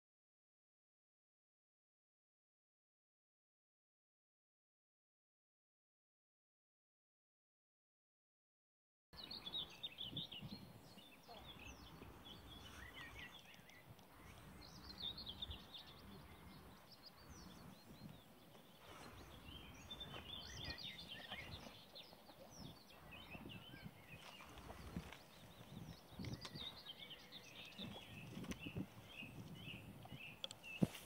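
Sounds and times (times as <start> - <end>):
small birds chirping: 9.2 - 31.0
wind rumble on microphone: 9.2 - 31.0.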